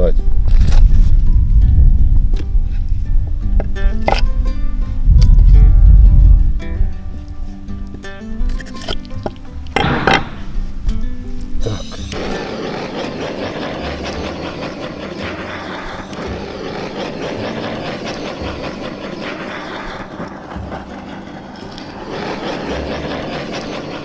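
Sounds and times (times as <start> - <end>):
gas torch flame hissing: 11.6 - 24.0.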